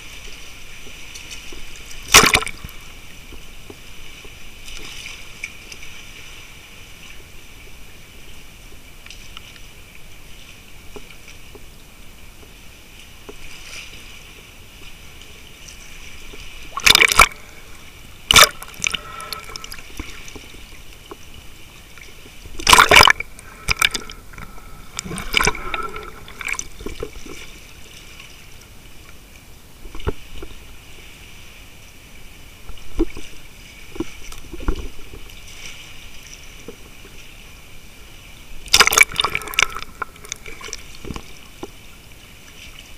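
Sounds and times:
sea water sloshing: 0.0 - 42.9
loud water splashes: 1.9 - 2.9, 16.5 - 20.6, 22.4 - 27.6, 38.6 - 41.2.

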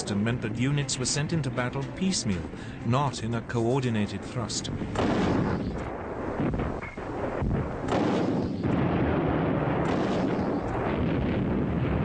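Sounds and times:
rumbling din: 4.7 - 12.0
explosions: 4.9 - 12.0
gunshots: 4.9 - 12.0.

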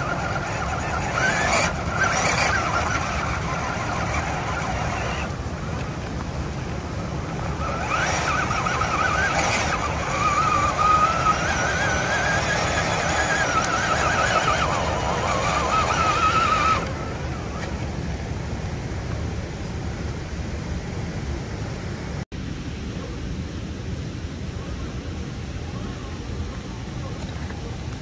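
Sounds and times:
electric motor whining: 0.0 - 6.1, 7.0 - 17.8.

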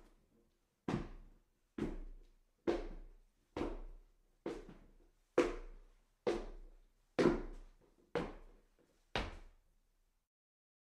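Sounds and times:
footsteps on staircase: 0.9 - 9.5.

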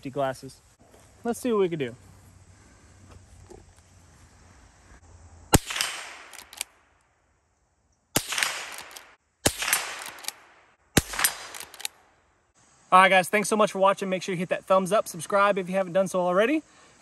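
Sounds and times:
rifle shots echoing: 5.5 - 6.7, 8.2 - 12.0.

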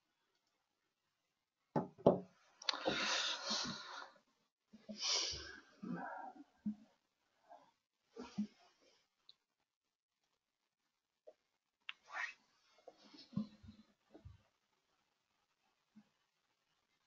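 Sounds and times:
person breathing close up: 2.7 - 4.2.

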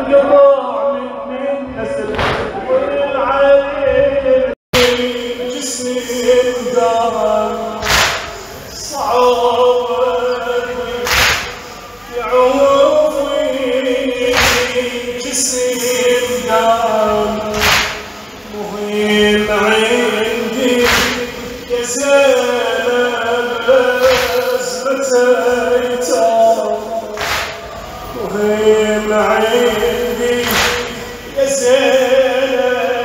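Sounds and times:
crowd of men chanting: 1.8 - 33.0
collective chest-beating slaps: 2.2 - 2.5, 7.8 - 8.4, 11.0 - 11.6, 14.3 - 14.8, 17.5 - 18.1, 20.8 - 21.4, 24.0 - 24.4, 27.2 - 27.7, 30.4 - 31.0.

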